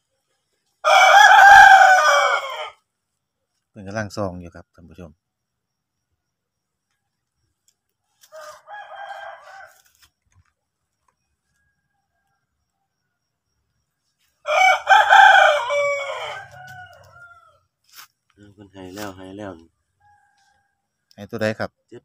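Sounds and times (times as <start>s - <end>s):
rooster crowing: 0.8s - 2.8s, 8.2s - 10.1s, 14.4s - 17.7s, 19.9s - 21.0s.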